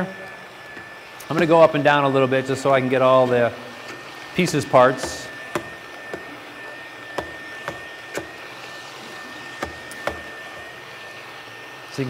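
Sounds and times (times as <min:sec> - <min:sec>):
stick blender motor whine: 0:00.0 - 0:12.0
blender knocking on metal pot: 0:04.9 - 0:06.4, 0:07.1 - 0:08.5, 0:09.6 - 0:10.7.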